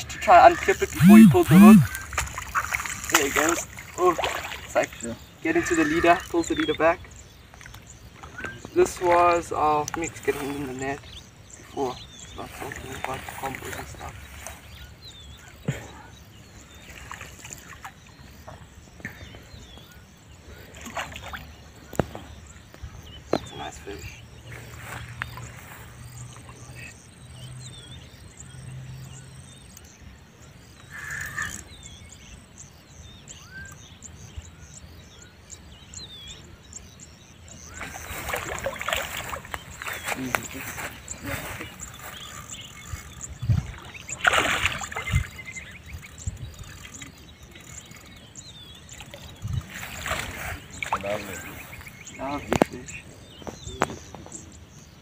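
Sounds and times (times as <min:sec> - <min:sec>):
insect trilling: 0:00.0 - 0:14.8, 0:30.8 - 0:31.8, 0:37.6 - 0:52.9
bird chirping calls: 0:00.0 - 0:55.0
water splashing: 0:00.2 - 0:06.6, 0:16.6 - 0:18.7, 0:20.5 - 0:22.3, 0:37.6 - 0:48.2, 0:48.8 - 0:53.0
wind gusts on microphone: 0:37.7 - 0:47.2, 0:49.1 - 0:54.6.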